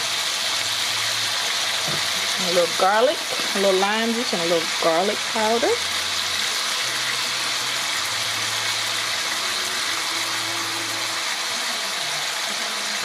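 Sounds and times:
chicken sizzling in a pan: 0.0s - 13.0s.

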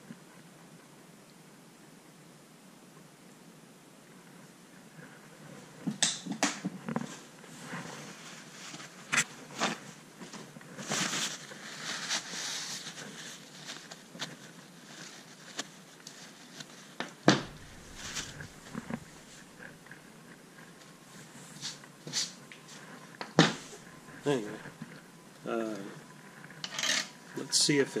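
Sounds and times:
paper towel rustling: 7.6s - 19.8s.

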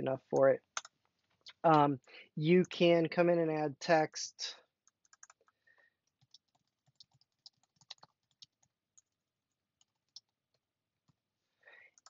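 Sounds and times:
typing on computer keyboard: 4.9s - 9.2s, 9.8s - 10.4s.

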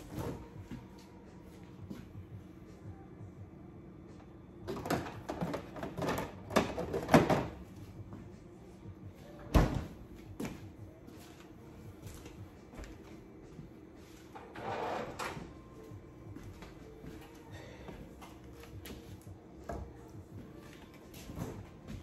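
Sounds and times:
items clattering in refrigerator: 0.0s - 1.0s, 4.6s - 7.8s, 14.2s - 15.8s
refrigerator door thud: 9.5s - 10.0s.

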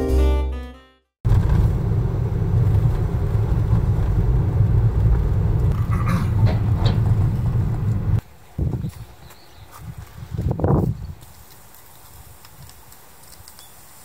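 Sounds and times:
car cabin road and engine rumble: 1.3s - 8.2s.

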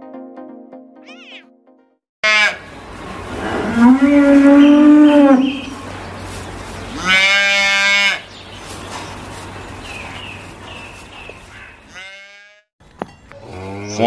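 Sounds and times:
calf bawling: 1.1s - 1.4s.

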